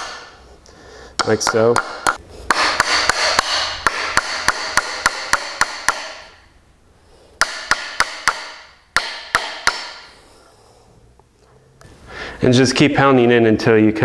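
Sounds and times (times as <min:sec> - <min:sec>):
hammer tapping nail into wood: 0:01.2 - 0:06.4, 0:07.4 - 0:10.1.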